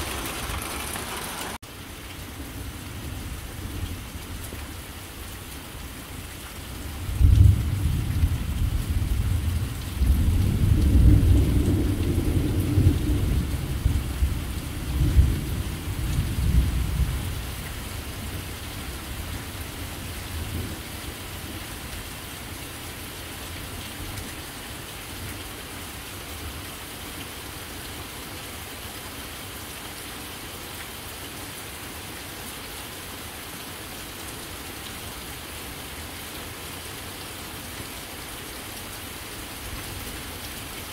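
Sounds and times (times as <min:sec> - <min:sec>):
thunder rumbling: 0:00.0 - 0:01.6, 0:07.2 - 0:17.3
rain hissing: 0:00.0 - 0:02.0.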